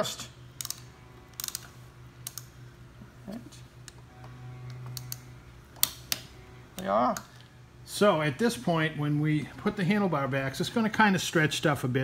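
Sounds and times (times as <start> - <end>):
torque wrench ratchet clicks: 0.6 - 2.5.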